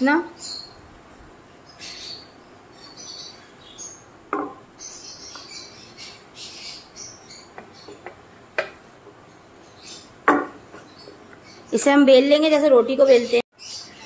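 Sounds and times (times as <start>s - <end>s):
small birds chirping: 0.0s - 14.0s
kitchen items knocking on worktop: 4.3s - 4.6s, 10.3s - 10.6s.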